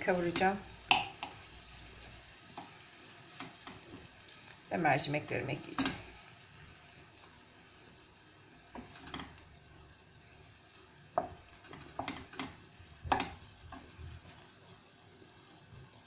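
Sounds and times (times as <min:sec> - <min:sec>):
vegetables sizzling in a pan: 0:00.0 - 0:16.0
wooden spoon scraping a pan: 0:00.2 - 0:04.5, 0:08.6 - 0:09.5, 0:11.2 - 0:14.4.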